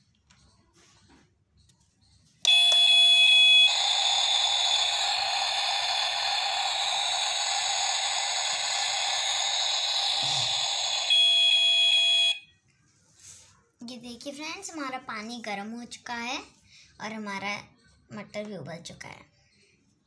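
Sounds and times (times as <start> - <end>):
electronic tone with beeps: 2.5 - 12.4.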